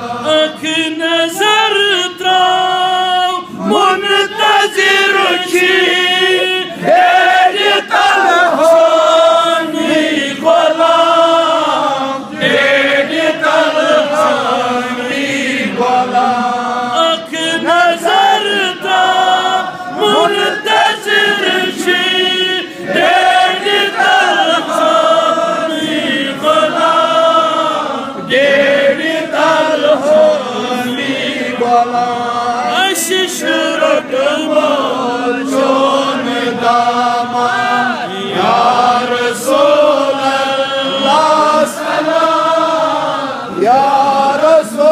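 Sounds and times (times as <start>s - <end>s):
man chanting: 0.0s - 9.8s, 16.0s - 22.7s, 29.5s - 36.2s, 36.8s - 42.1s, 43.5s - 44.9s.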